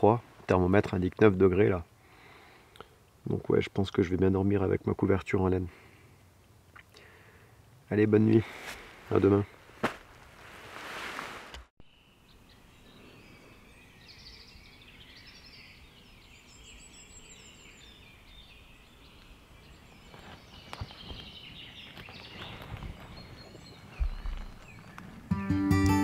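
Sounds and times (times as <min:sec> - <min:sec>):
songbirds chirping and trilling: 0:11.8 - 0:25.5.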